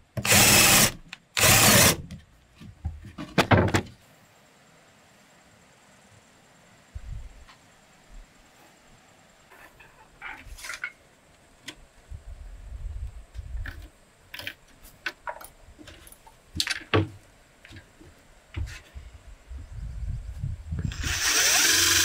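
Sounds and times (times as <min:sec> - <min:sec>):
tools and boards knocking on wooden floor: 0:02.6 - 0:03.9.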